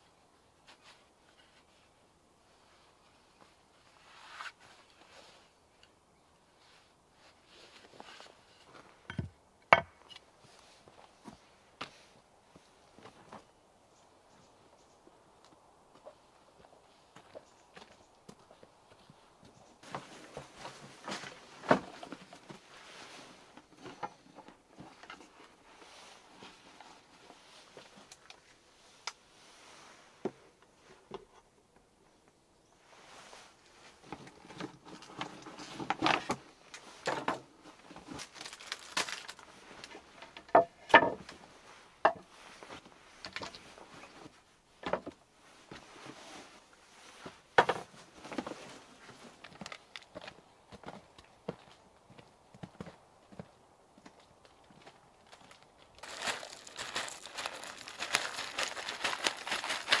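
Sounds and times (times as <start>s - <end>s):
backpack and plastic bags rustling: 33.5s - 40.4s, 45.6s - 50.7s, 55.2s - 60.0s.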